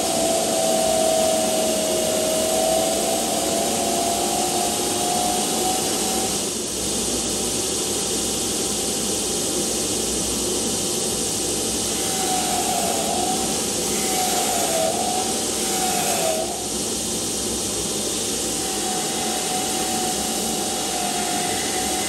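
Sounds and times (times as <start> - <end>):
belt grinder sanding wood: 0.0 - 6.4, 11.9 - 16.7, 18.4 - 22.0.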